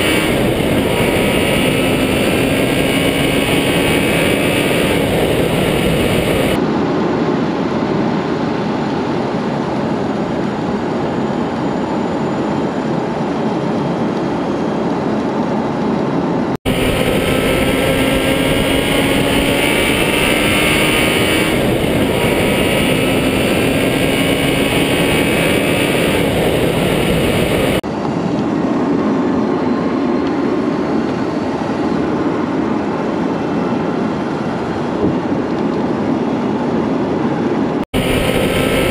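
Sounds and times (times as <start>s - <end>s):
road and wind noise: 0.0s - 38.9s.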